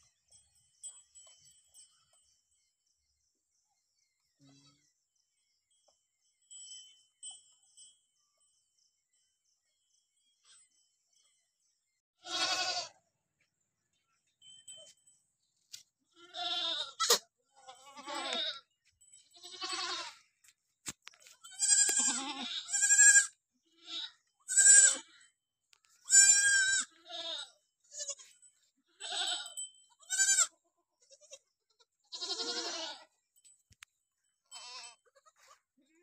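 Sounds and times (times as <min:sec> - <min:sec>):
goats bleating: 0:12.2 - 0:13.0, 0:16.1 - 0:18.6, 0:19.4 - 0:20.2, 0:21.4 - 0:25.2, 0:26.0 - 0:31.4, 0:32.1 - 0:33.1, 0:34.5 - 0:35.6.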